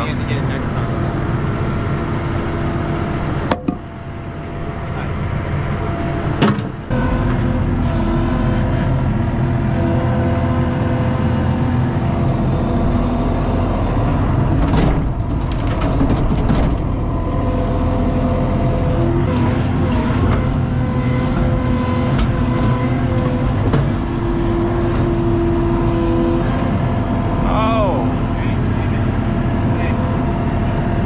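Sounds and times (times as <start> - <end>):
diesel engine running: 0.0 - 31.0
sharp knocks: 3.5 - 3.8.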